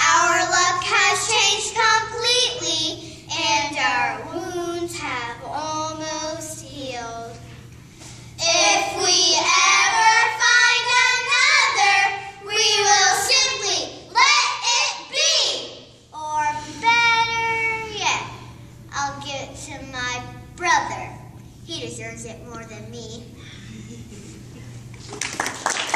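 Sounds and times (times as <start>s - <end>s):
girls singing in unison: 8.4s - 15.5s.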